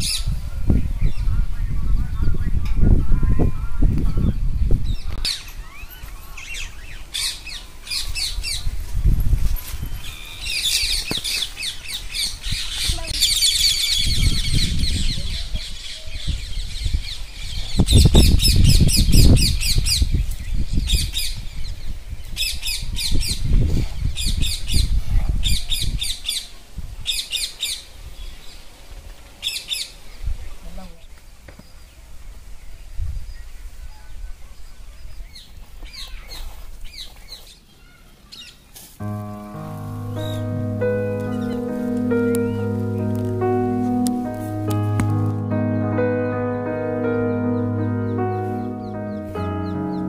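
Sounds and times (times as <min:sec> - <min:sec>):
birds calling: 0:00.0 - 0:08.8, 0:09.6 - 0:23.4, 0:33.4 - 0:50.0.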